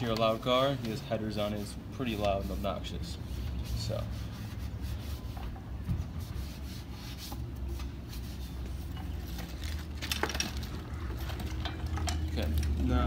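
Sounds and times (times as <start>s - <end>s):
brush scrubbing wet wheel: 0.0s - 5.5s, 6.1s - 9.6s.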